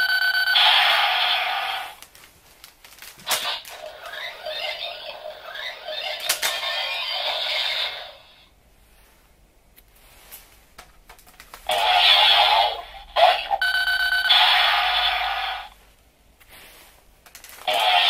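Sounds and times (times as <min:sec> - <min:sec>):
steady beeping tones: 0:00.0 - 0:00.7, 0:13.6 - 0:15.4
toy electronic sound effects: 0:11.7 - 0:15.7, 0:17.7 - 0:18.0.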